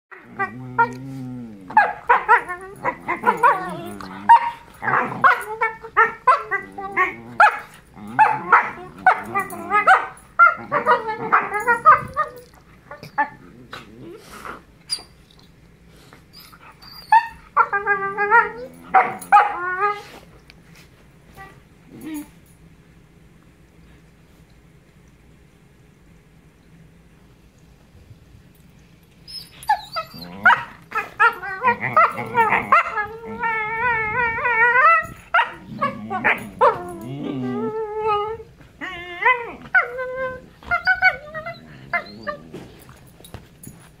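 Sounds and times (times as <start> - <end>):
dogs howling calls: 0.1 - 12.5, 29.6 - 42.5.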